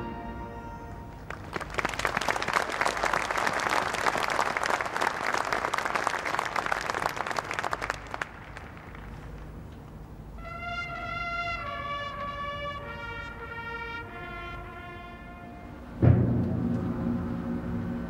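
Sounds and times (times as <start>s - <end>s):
audience applauding: 1.1s - 9.5s.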